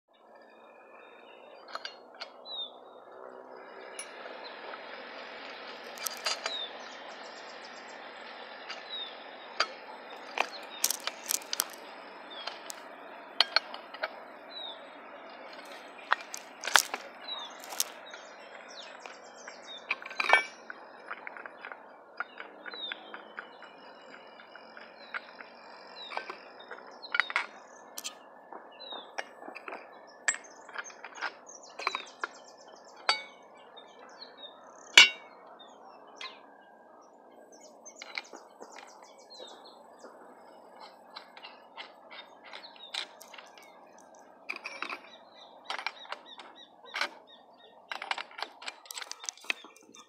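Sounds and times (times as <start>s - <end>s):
bird chirping: 0.1s - 50.0s
steady outdoor hiss: 0.1s - 50.0s
hand tools clinking on metal blade: 35.0s - 35.2s.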